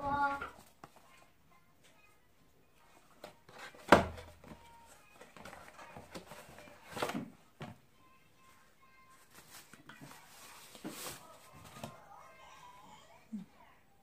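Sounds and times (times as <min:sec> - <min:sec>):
cardboard rustling and scraping: 0:03.2 - 0:07.3, 0:09.1 - 0:12.0.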